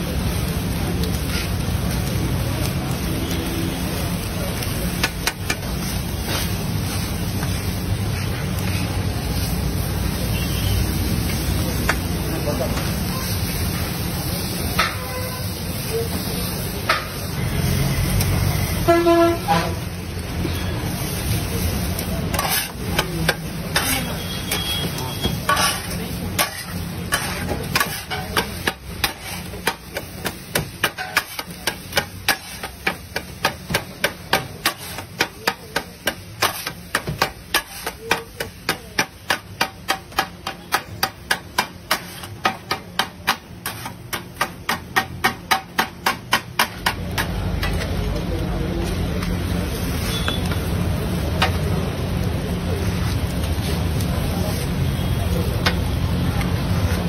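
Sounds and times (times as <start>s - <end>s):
metal spatulas clanging on a griddle: 1.2s - 2.0s, 4.6s - 7.6s, 14.7s - 15.3s, 16.8s - 17.3s, 22.0s - 48.2s, 49.8s - 51.7s, 55.5s - 55.9s.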